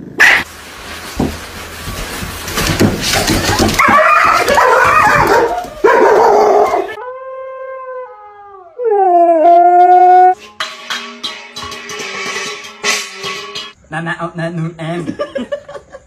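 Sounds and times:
dog barking excitedly: 0:00.2 - 0:00.5, 0:03.4 - 0:07.0
husky howling: 0:03.8 - 0:10.4.

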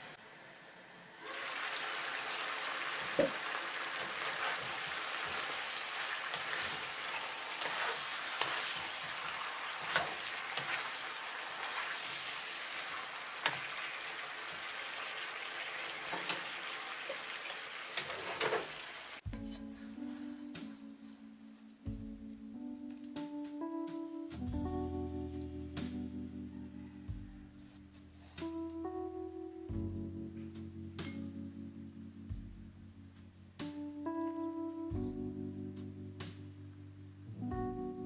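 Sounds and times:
chicken sizzling in a frying pan: 0:00.0 - 0:19.3
utensil knocking and scraping pan: 0:18.0 - 0:18.7.

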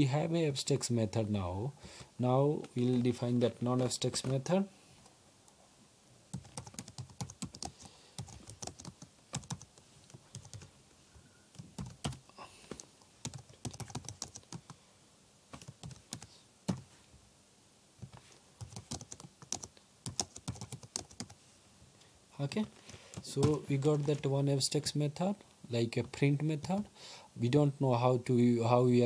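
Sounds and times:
typing on computer keyboard: 0:06.3 - 0:10.7, 0:11.5 - 0:12.2, 0:13.2 - 0:14.7, 0:15.6 - 0:16.8, 0:18.6 - 0:21.4.

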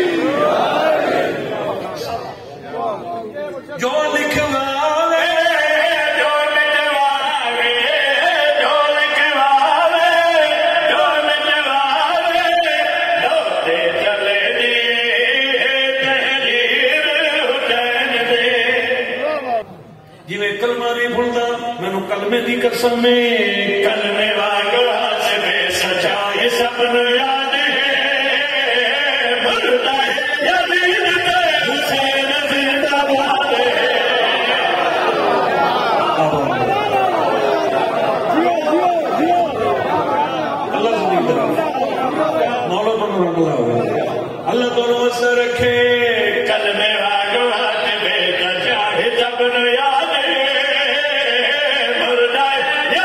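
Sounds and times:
men chanting devotional song: 0:03.8 - 0:19.6, 0:21.1 - 0:37.1, 0:44.5 - 0:53.0.

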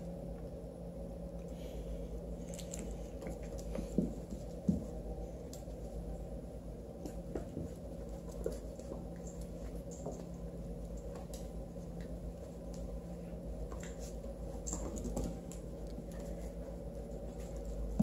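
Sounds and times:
steady low hum: 0:00.0 - 0:18.0
animals scuffling: 0:06.8 - 0:18.0.

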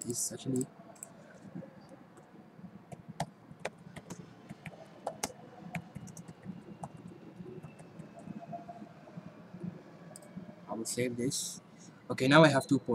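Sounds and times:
typing on a keyboard: 0:02.9 - 0:08.8, 0:10.1 - 0:10.4.

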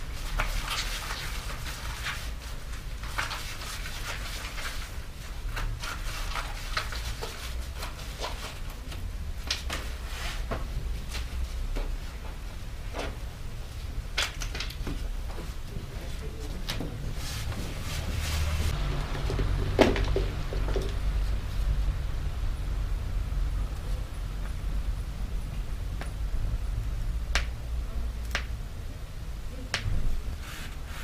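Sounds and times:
steady low hum: 0:06.9 - 0:31.0.

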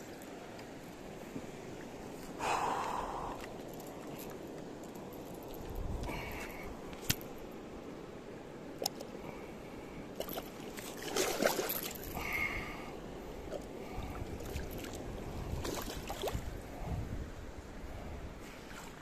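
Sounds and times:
water splashing around waders: 0:10.2 - 0:12.2, 0:13.5 - 0:16.5.

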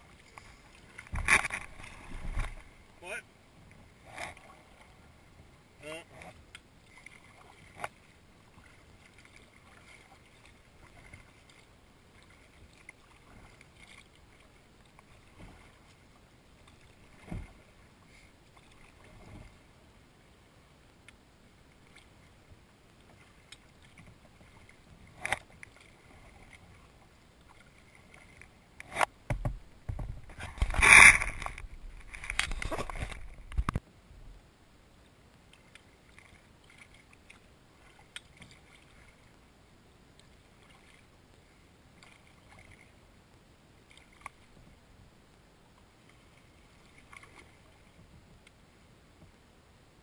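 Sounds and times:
paddle strokes: 0:00.0 - 0:19.8, 0:21.0 - 0:34.3, 0:35.0 - 0:49.5
soft knocks on kayak: 0:29.3 - 0:30.7.

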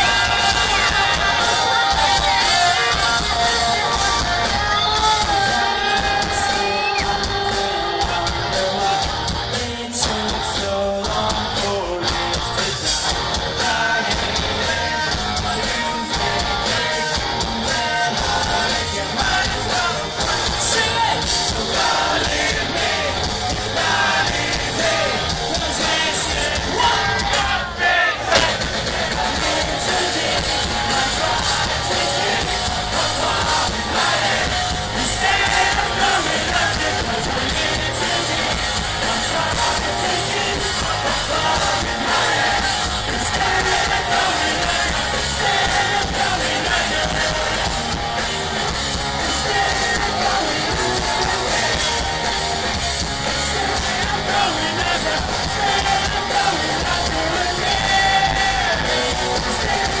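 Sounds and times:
person singing: 0:00.0 - 0:27.7, 0:28.3 - 1:00.0
drums: 0:00.0 - 1:00.0
electric guitars: 0:00.0 - 1:00.0.

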